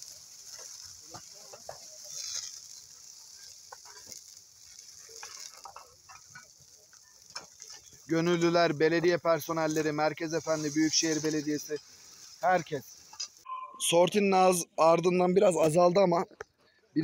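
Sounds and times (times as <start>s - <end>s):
brush fire crackling: 0.0s - 13.5s
fire popping: 0.0s - 13.5s.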